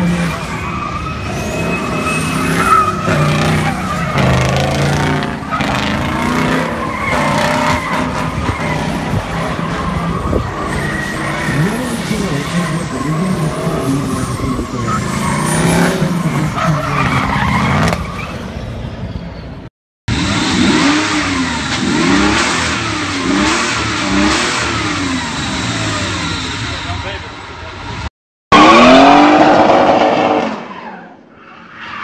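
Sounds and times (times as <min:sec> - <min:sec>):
tyres skidding and squealing: 0:00.0 - 0:32.0
car engine revving: 0:01.3 - 0:18.0, 0:20.1 - 0:27.2.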